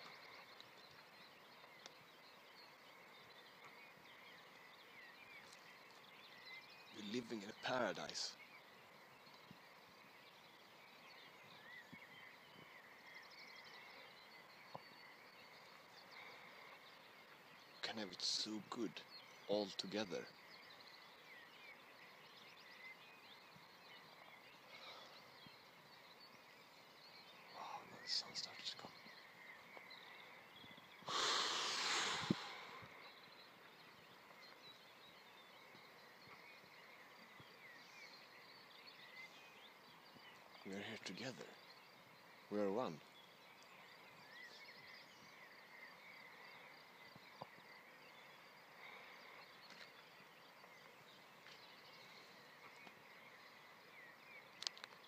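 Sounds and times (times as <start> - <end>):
distant birds chirping: 0.0 - 55.0
breathy exhale: 31.1 - 32.8
small click: 54.6 - 55.0.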